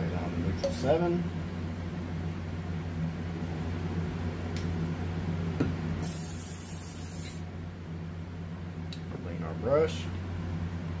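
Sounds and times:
steady low hum: 0.0 - 11.0
airbrush hissing spray: 6.0 - 7.4.

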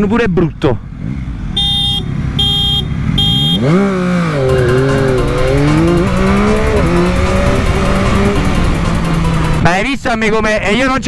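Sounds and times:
motorcycle engine revving: 0.8 - 9.8
motorcycle horn blasts: 1.6 - 3.8.

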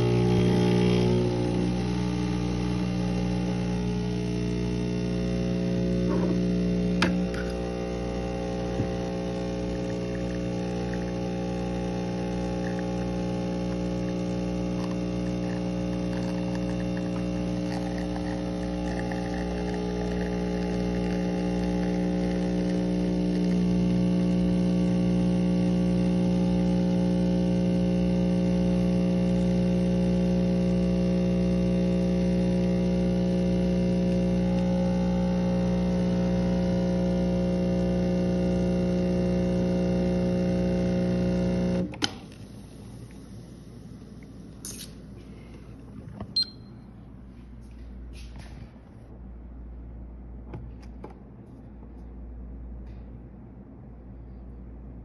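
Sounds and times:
espresso machine pump buzzing: 0.0 - 46.8
click: 41.8 - 42.4.

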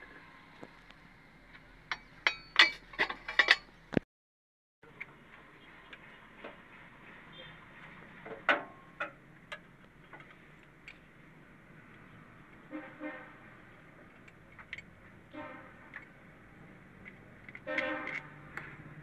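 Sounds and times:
vehicle horn honking: 12.7 - 13.3, 15.3 - 15.7, 17.6 - 18.3.

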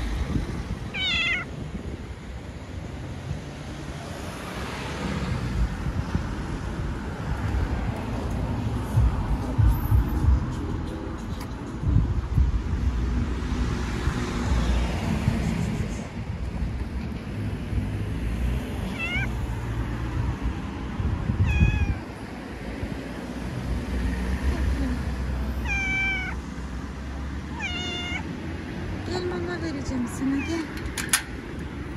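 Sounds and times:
cat meowing: 0.9 - 1.5, 18.9 - 19.4, 21.4 - 22.2, 25.6 - 26.4, 27.5 - 28.4
steady low rumble: 5.4 - 18.1.

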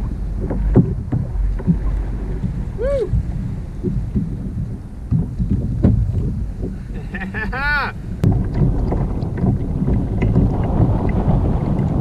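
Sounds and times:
water sloshing around kayak: 0.0 - 12.0
wind buffeting microphone: 0.0 - 12.0
short pitched cry: 2.8 - 3.2.

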